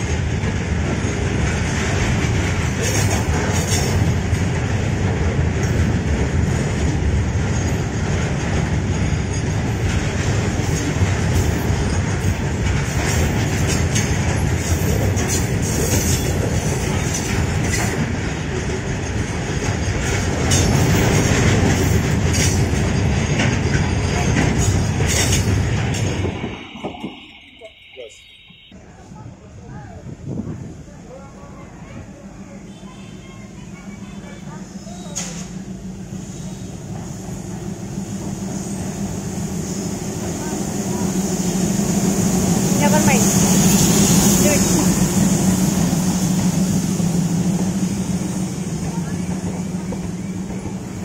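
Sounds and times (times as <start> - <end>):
wheels clattering over rail joints: 0.0 - 27.1
freight train wheels rumbling: 0.0 - 51.0.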